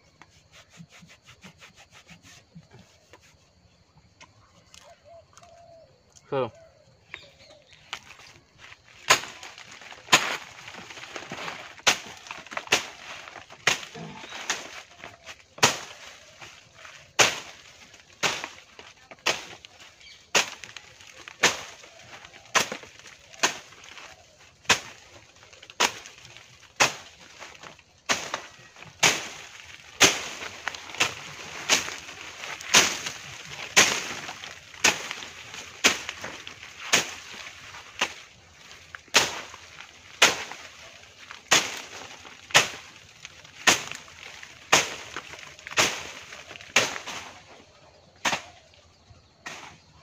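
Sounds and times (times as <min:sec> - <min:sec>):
machete chopping stems: 0:09.0 - 0:19.7, 0:20.3 - 0:47.4, 0:48.2 - 0:48.7, 0:49.4 - 0:49.8.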